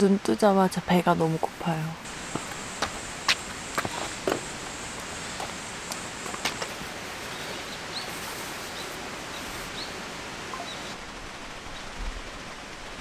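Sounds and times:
steady rushing background noise: 0.0s - 13.0s
high bird chirps: 8.7s - 11.0s.

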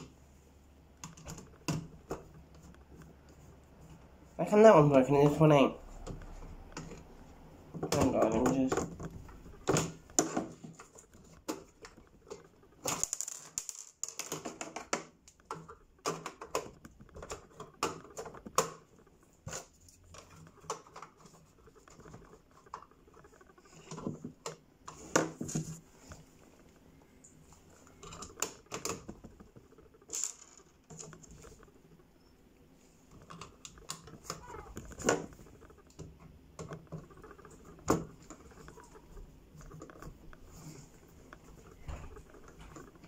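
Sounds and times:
small parts clicking and tapping: 7.7s - 32.0s.

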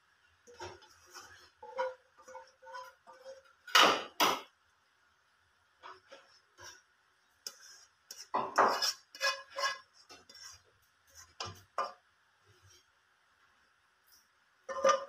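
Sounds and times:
spatula scraping frying pan: 0.5s - 3.8s, 5.9s - 12.0s, 14.7s - 15.0s.

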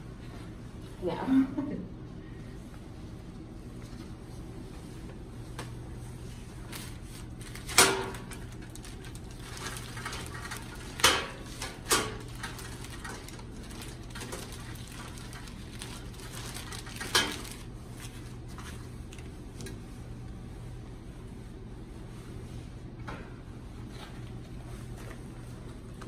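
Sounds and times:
plastic drape crinkling: 6.6s - 19.7s.

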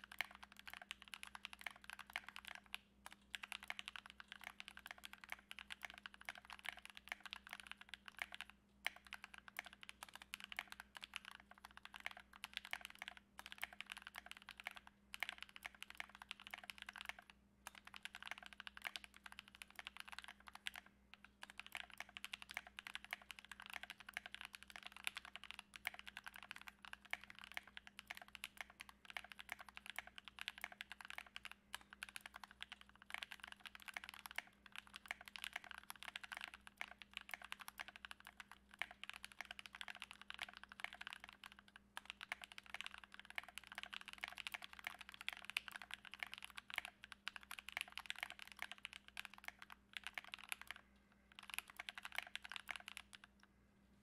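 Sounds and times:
mechanical keyboard typing: 0.0s - 53.4s.

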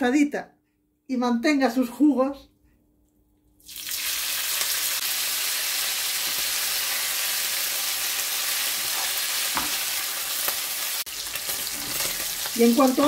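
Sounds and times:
meat sizzling in a frying pan: 3.6s - 13.0s
spatula scraping a pan: 11.5s - 12.3s.

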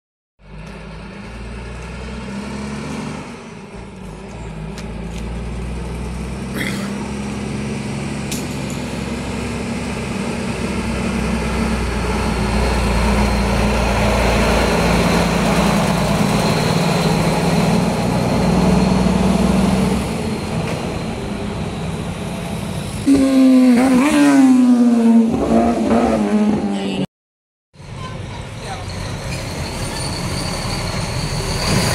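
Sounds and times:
dump truck engine drone: 0.4s - 27.1s, 27.8s - 31.9s.

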